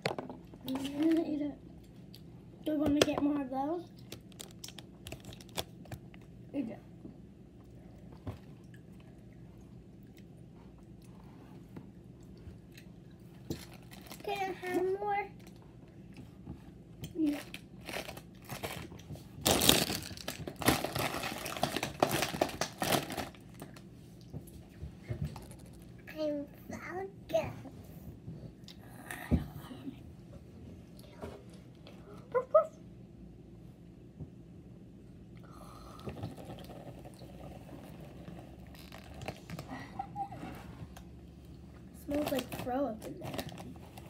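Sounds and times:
low room hum: 0.0 - 44.0
plastic snack bag crinkling: 4.0 - 6.3, 13.5 - 14.8, 17.2 - 23.9.

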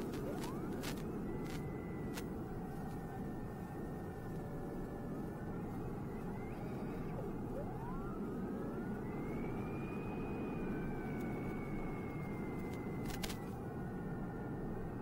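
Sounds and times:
short crackle: 0.0 - 2.2, 12.6 - 13.5
wind and propeller rushing: 0.0 - 15.0.

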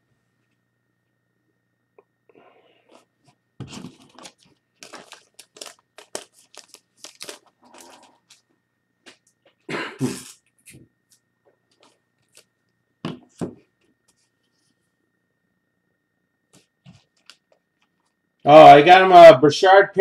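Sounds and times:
cards and plastic sleeves rustling: 2.8 - 9.6.

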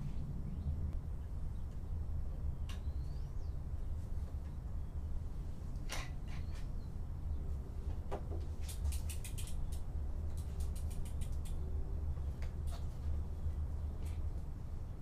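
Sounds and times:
low rumble: 0.0 - 4.0.

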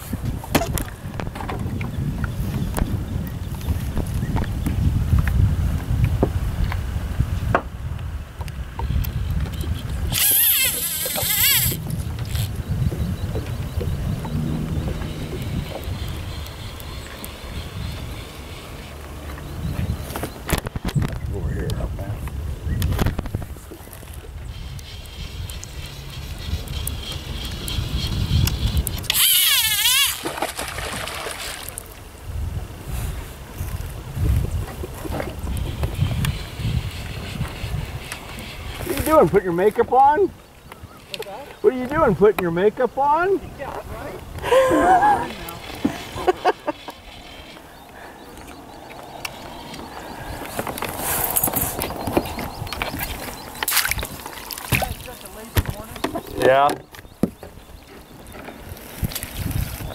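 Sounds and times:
fly reel drag buzzing: 10.0 - 12.6, 27.0 - 30.6
water splashing: 30.1 - 32.0, 49.8 - 56.3.

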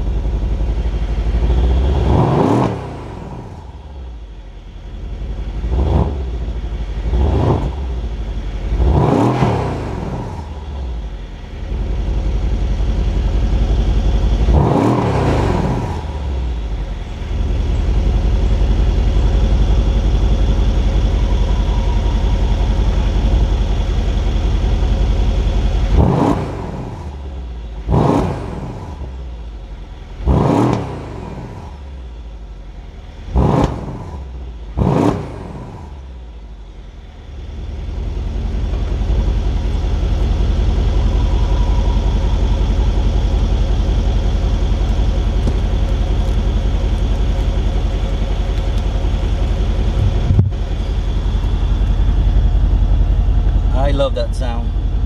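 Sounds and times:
car engine idling with deep rumble: 0.0 - 55.0
engine revving: 0.7 - 4.3, 5.4 - 32.2, 33.1 - 36.4.

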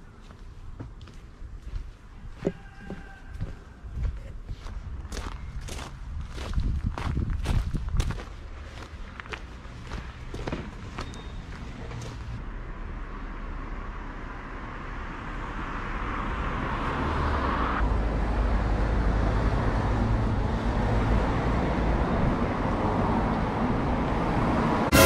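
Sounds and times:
cars passing: 8.1 - 25.0.

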